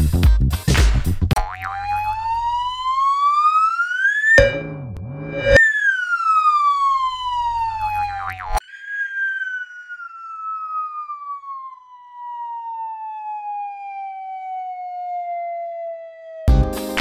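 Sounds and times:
electronic tone sliding down: 4.2 - 5.7, 7.4 - 11.6
low hum: 4.4 - 5.6.

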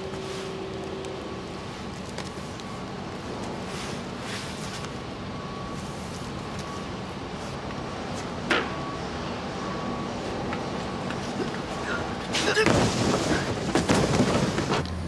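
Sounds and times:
factory machinery hum: 0.0 - 15.0
cardboard boxes scraping: 12.9 - 14.8.

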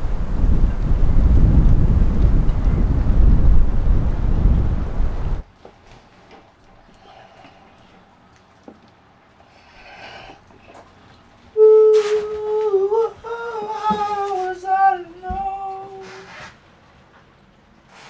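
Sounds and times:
person singing: 11.6 - 16.4.

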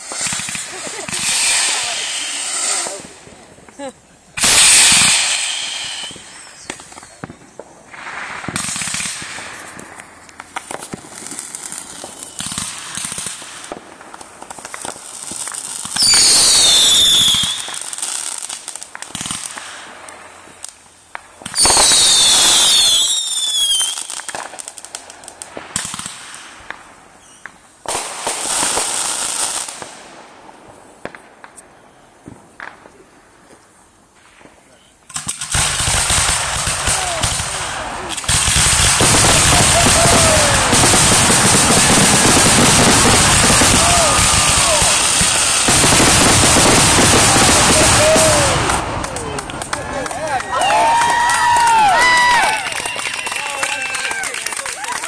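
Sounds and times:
fireworks bursting and crackling: 0.0 - 55.0
shrill falling whistles: 16.0 - 17.8.

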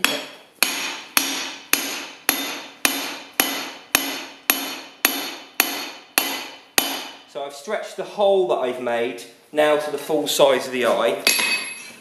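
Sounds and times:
hammer ringing on steel: 0.0 - 7.3.

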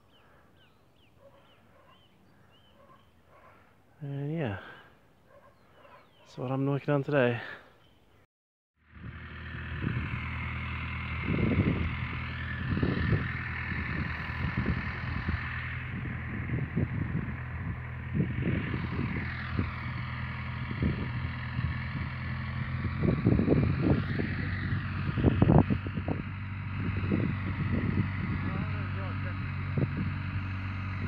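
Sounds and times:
tractor engine running: 8.8 - 31.0
wind buffeting microphone: 9.0 - 31.0.

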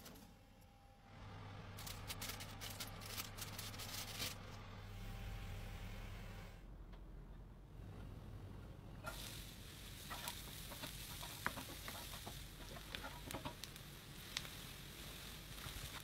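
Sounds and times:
food sizzling in oven: 9.0 - 16.0.

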